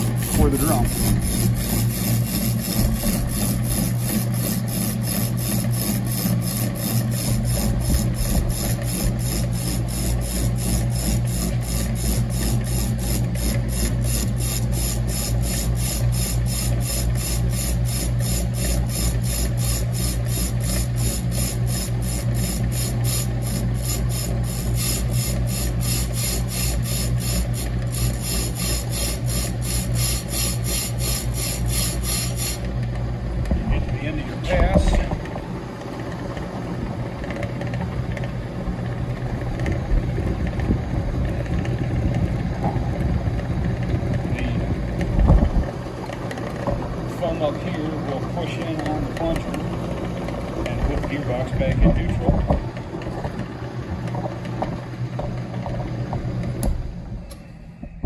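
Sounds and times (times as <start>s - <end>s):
cutting bit scraping metal drum: 0.0s - 32.8s
motor hum: 0.0s - 58.0s.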